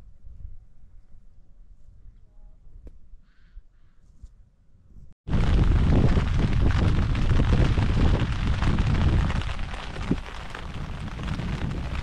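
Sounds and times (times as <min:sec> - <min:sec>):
wind buffeting microphone: 0:04.9 - 0:12.0.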